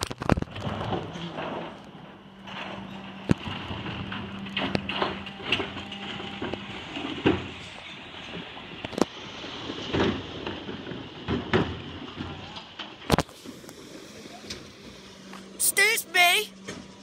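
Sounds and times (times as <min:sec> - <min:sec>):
wheelie bins knocking and banging: 0:00.5 - 0:08.5, 0:09.8 - 0:13.1
refuse lorry humming: 0:01.2 - 0:09.7.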